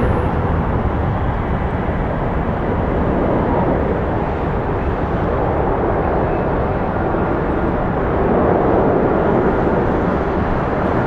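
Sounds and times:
jet engines rushing: 0.0s - 11.0s.

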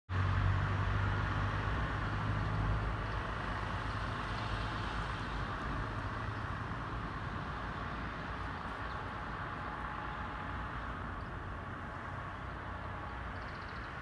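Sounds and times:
low engine hum: 0.1s - 14.0s.

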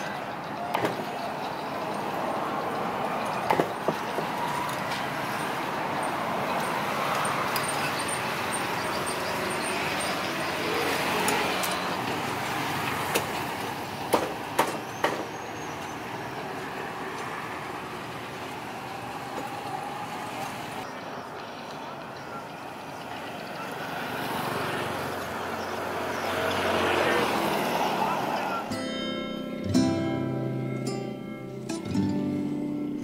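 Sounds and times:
road traffic: 0.0s - 33.0s
sharp knocks: 3.4s - 4.4s, 14.1s - 15.3s.

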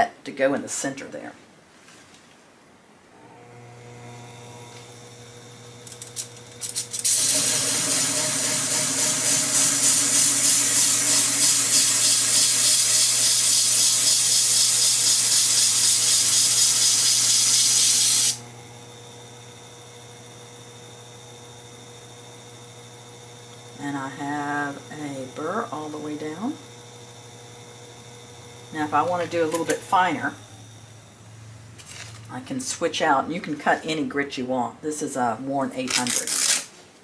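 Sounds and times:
sharpening machine motor hum: 3.2s - 32.3s
blade grinding on disc: 5.7s - 18.5s, 27.8s - 30.6s.

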